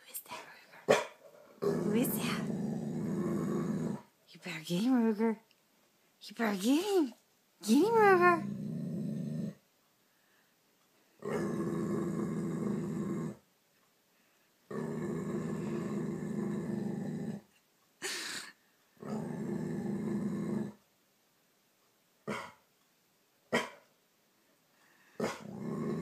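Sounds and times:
dog growling: 0.9 - 4.2, 7.8 - 9.6, 11.2 - 13.5, 14.7 - 17.5, 19.0 - 20.8, 22.2 - 22.6, 25.2 - 26.0.

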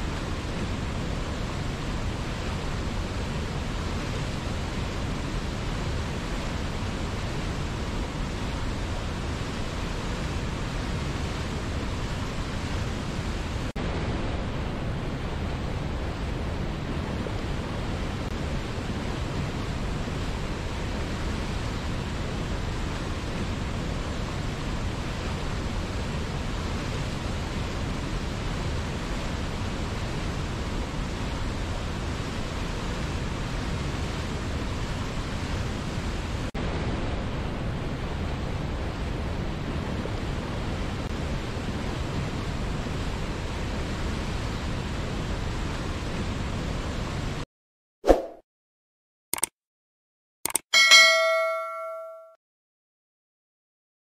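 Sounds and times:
waterfall and rapids rushing: 0.0 - 47.4.

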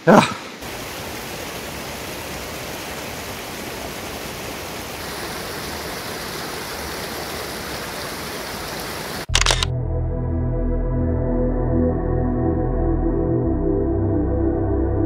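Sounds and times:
mountain stream rushing: 0.0 - 9.3
calm ambient music: 9.6 - 15.0.

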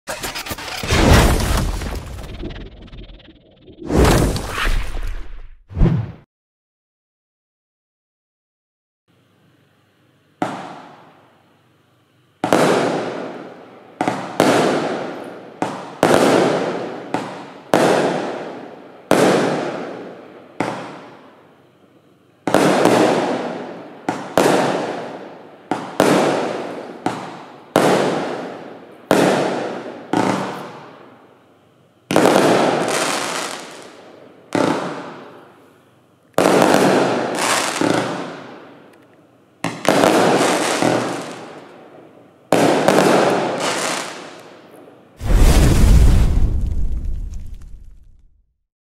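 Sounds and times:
firework bangs: 0.1 - 2.7, 12.4 - 13.4, 14.0 - 21.2, 22.5 - 30.9, 32.1 - 35.4, 36.4 - 38.6, 39.6 - 41.6, 42.5 - 44.4, 45.2 - 48.3.

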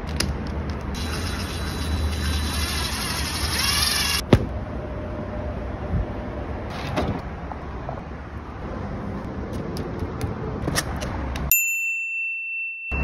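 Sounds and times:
low traffic rumble: 0.0 - 11.5
bell-like ding: 11.5 - 13.0.

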